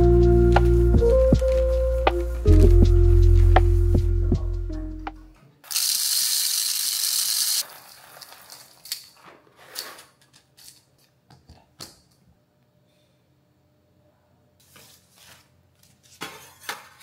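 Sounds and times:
coffee beans poured rattling: 0:05.6 - 0:09.2.

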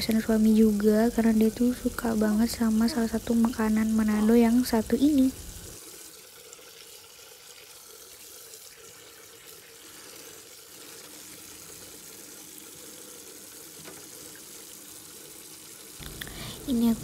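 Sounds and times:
tap running into steel sink: 0:13.8 - 0:14.2.

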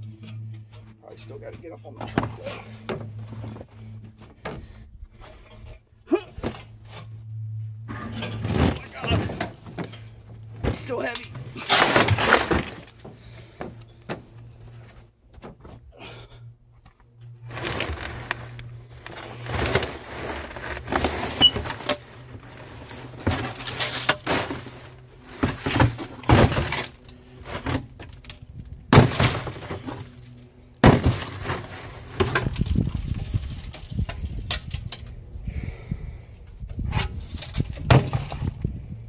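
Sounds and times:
faint low hum: 0:00.0 - 0:39.0
scrap clattering and crashing: 0:07.8 - 0:15.8, 0:17.4 - 0:35.0, 0:36.8 - 0:38.7.

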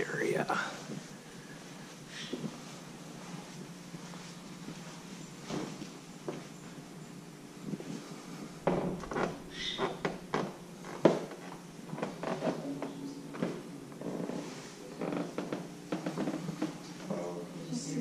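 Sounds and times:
footsteps going up stairs: 0:00.8 - 0:06.9, 0:07.6 - 0:12.6, 0:15.0 - 0:17.1.

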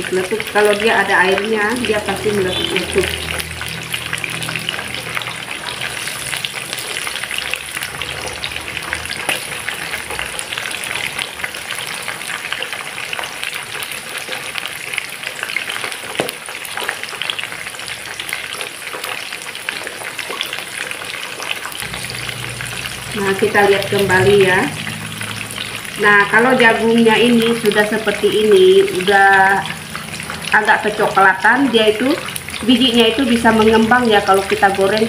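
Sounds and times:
corn sizzling in hot oil: 0:00.0 - 0:35.0.

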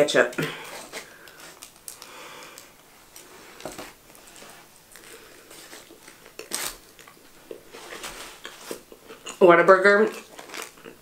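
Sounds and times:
paper wrapper rustling: 0:00.6 - 0:08.9, 0:10.2 - 0:10.8
burger being chewed: 0:03.2 - 0:09.4, 0:10.2 - 0:11.0.

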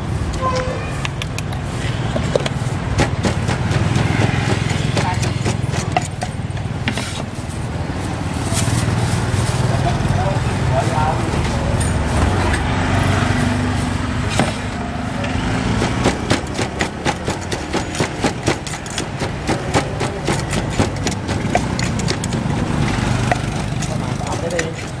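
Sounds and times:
pestle pounding in mortar: 0:01.1 - 0:07.3, 0:15.3 - 0:25.0.

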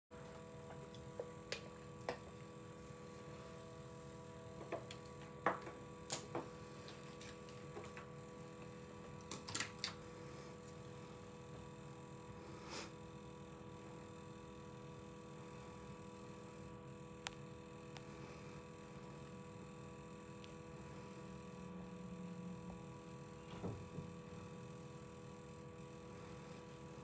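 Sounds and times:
low electrical hum: 0:00.1 - 0:27.0.

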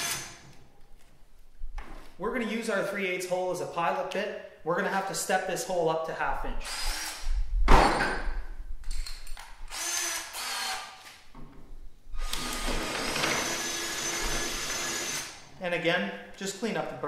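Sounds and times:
power drill boring through plastic: 0:00.0 - 0:00.4, 0:06.6 - 0:07.2, 0:09.7 - 0:11.1, 0:12.2 - 0:15.4.

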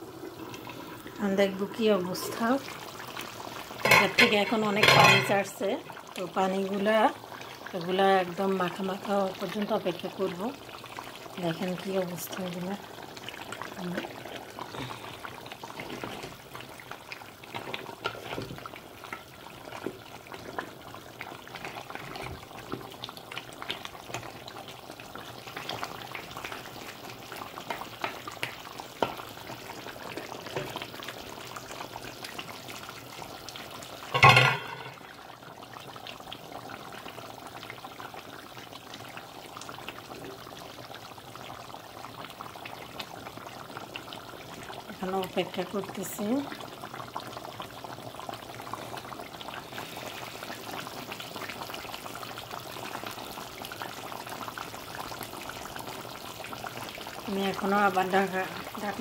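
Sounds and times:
curry bubbling and popping: 0:00.0 - 0:59.0.

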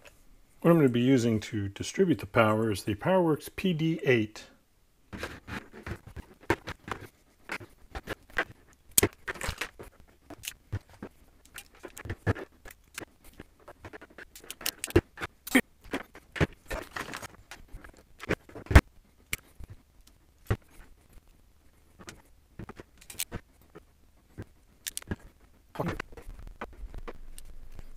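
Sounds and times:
hand tools clicking and snipping: 0:05.5 - 0:18.6, 0:22.0 - 0:23.4, 0:24.8 - 0:26.1
wire snapping: 0:06.1 - 0:19.8, 0:22.0 - 0:23.4.

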